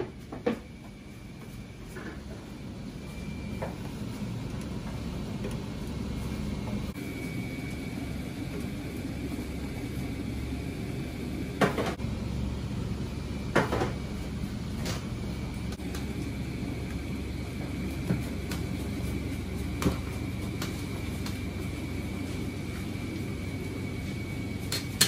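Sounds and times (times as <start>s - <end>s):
low kitchen rumble: 0.0s - 25.0s.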